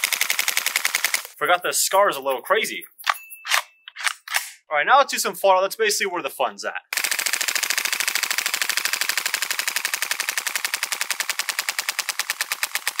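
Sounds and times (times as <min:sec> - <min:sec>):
airsoft rifle full-auto burst: 0:00.0 - 0:01.4, 0:06.9 - 0:13.0.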